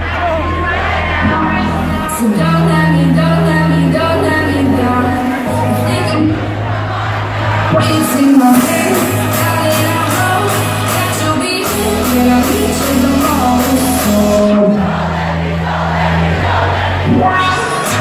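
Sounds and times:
crowd shouting: 0:00.0 - 0:02.6, 0:05.2 - 0:09.5, 0:11.9 - 0:18.0
electronic dance music: 0:00.0 - 0:18.0
person singing: 0:01.2 - 0:06.4, 0:07.7 - 0:15.0, 0:17.1 - 0:18.0.

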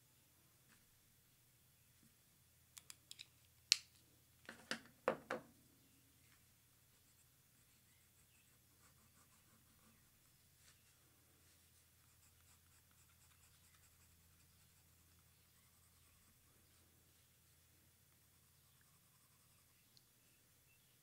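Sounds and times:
pencil strokes on paper: 0:06.9 - 0:17.7, 0:18.3 - 0:19.9.

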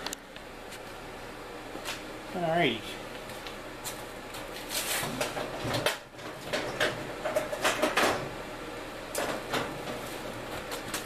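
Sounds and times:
parts clicking and knocking: 0:05.2 - 0:08.3.

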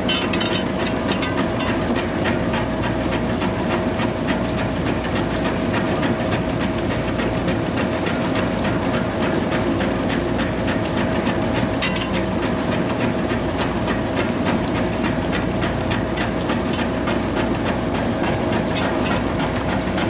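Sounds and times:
roots clattering against rollers: 0:00.0 - 0:01.9, 0:18.1 - 0:19.5
machine motor and roller hum: 0:00.0 - 0:20.0.

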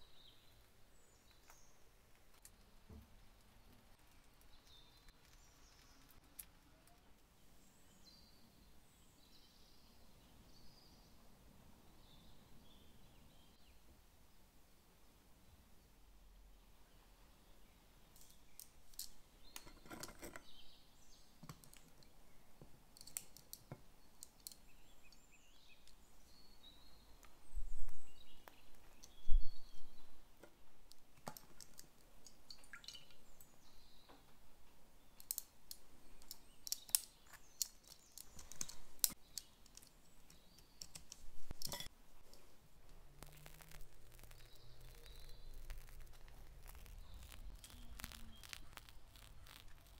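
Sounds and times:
faint bird chirps: 0:24.0 - 0:30.3, 0:43.3 - 0:49.9
kitchen utensils tapping and clicking: 0:41.5 - 0:41.9.

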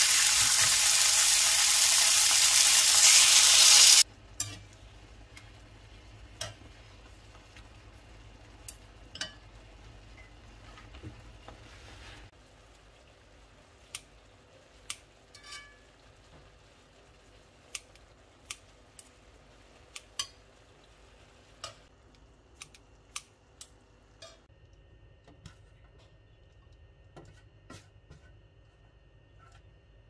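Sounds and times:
faint sizzle from pan: 0:00.0 - 0:25.6
metal tongs clicking on pan: 0:04.4 - 0:04.6, 0:06.4 - 0:06.6, 0:17.7 - 0:19.1, 0:19.9 - 0:20.4, 0:21.6 - 0:21.9, 0:22.6 - 0:24.5.

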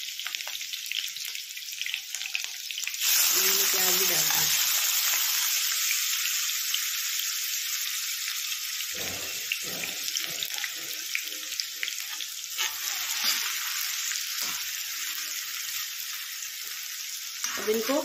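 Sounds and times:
onions sizzling in hot oil: 0:00.0 - 0:18.0.

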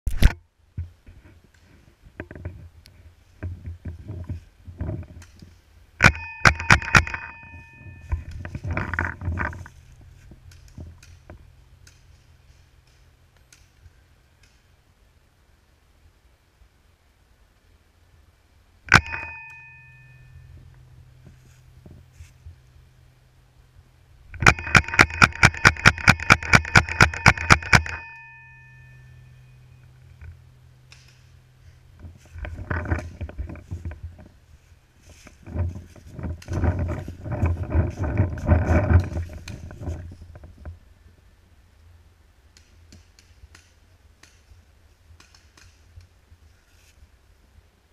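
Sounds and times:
ringing tone: 0:06.0 - 0:09.5, 0:18.9 - 0:21.2, 0:24.4 - 0:29.9
rustling in dry leaves: 0:07.4 - 0:16.2, 0:19.7 - 0:24.2, 0:28.4 - 0:42.2, 0:43.4 - 0:47.8.

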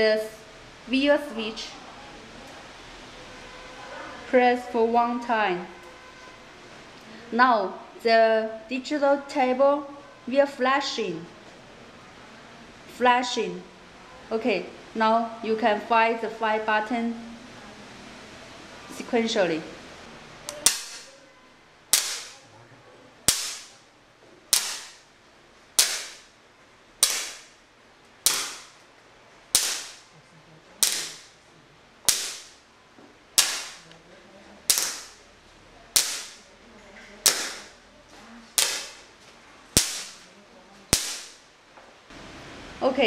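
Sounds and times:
electric igniters popping and fizzing: 0:29.6 - 0:30.1.

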